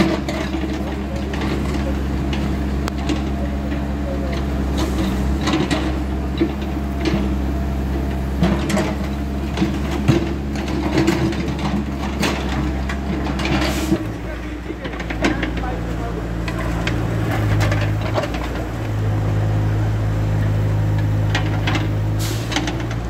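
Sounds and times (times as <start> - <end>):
backhoe diesel engine running: 0.0 - 23.0
bucket scraping soil and stones: 12.6 - 14.0.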